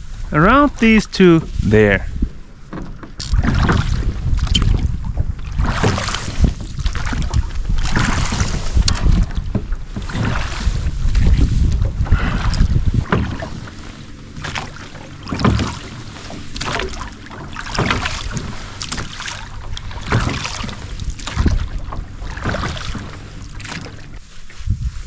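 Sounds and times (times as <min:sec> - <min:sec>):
oars swishing through water: 0:00.0 - 0:25.0
wind rumble on microphone: 0:00.0 - 0:25.0.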